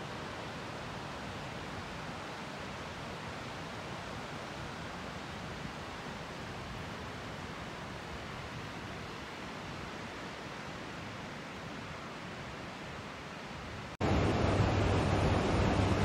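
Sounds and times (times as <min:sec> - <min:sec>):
ocean surf on a beach: 0:00.0 - 0:16.0
low steady rumble: 0:14.0 - 0:16.0.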